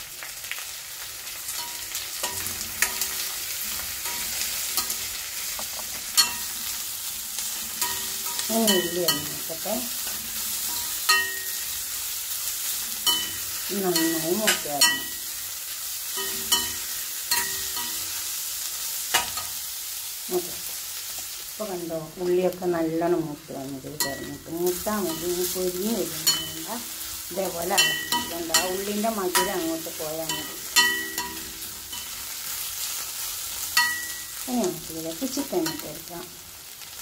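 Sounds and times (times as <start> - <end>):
onions sizzling in hot oil: 0.0 - 37.0
ladle clinking and scraping pan: 7.8 - 9.3, 24.0 - 26.6, 27.7 - 29.6.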